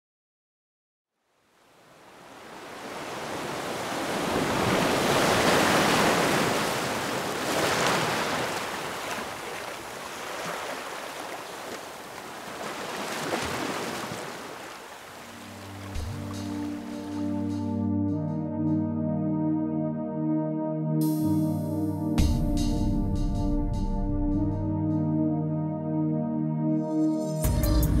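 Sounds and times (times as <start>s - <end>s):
ocean waves breaking: 1.7s - 17.7s.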